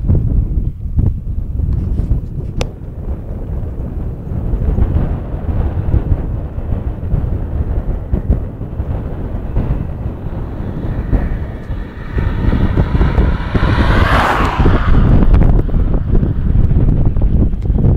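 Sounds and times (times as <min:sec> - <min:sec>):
wind buffeting microphone: 0:00.0 - 0:17.9
car accelerating past: 0:06.7 - 0:17.6.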